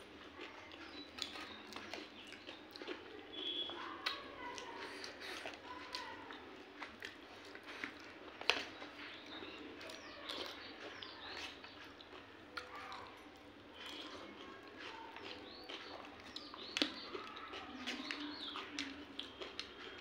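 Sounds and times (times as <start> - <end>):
eating sounds: 0.0 - 20.0
faint birds chirping: 0.0 - 20.0.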